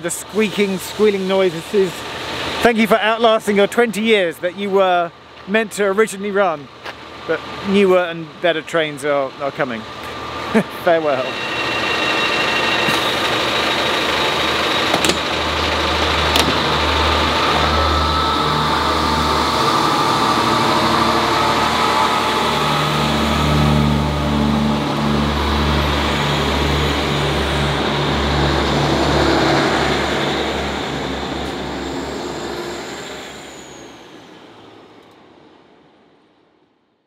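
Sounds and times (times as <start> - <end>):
diesel engine throbbing: 0.0 - 35.5
rail noise: 0.0 - 36.5.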